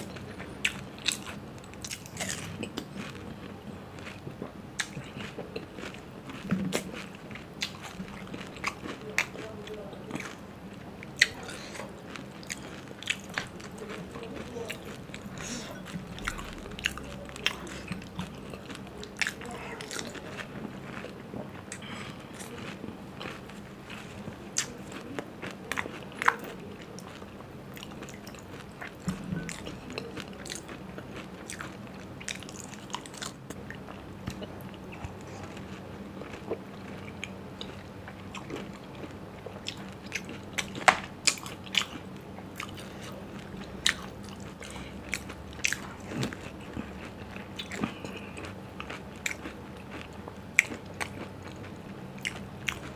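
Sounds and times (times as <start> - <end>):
wet chewing: 11.0 - 52.9
crisp shells crunching while chewing: 11.1 - 33.5, 34.3 - 52.9.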